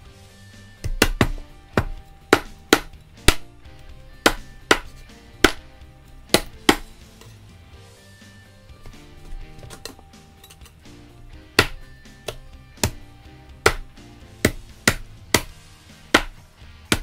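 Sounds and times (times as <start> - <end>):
background music: 0.0 - 17.0
knife chopping on plastic board: 0.8 - 3.5, 4.1 - 5.7, 6.3 - 7.3, 11.5 - 17.0.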